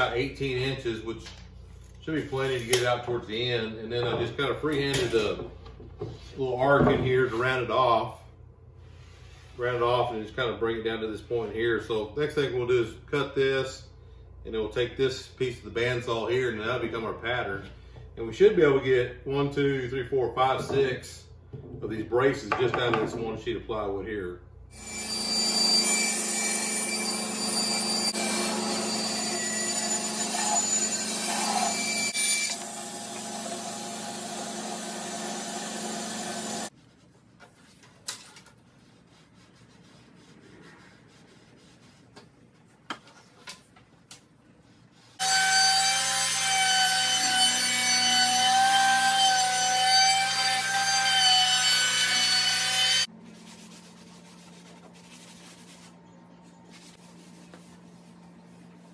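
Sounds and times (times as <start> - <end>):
bandsaw cutting plywood: 24.8 - 36.7, 45.2 - 53.1
power tool running: 24.8 - 36.7.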